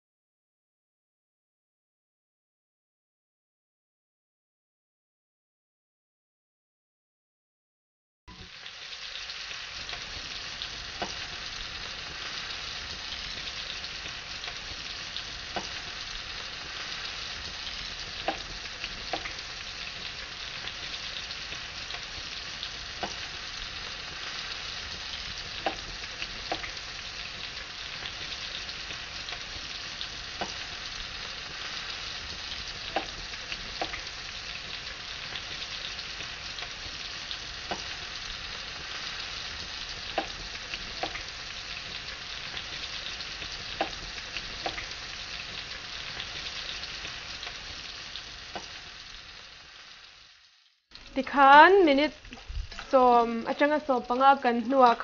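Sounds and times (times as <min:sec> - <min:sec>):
food sizzling: 0:08.3 - 0:55.0
sharp pops: 0:40.1 - 0:41.3.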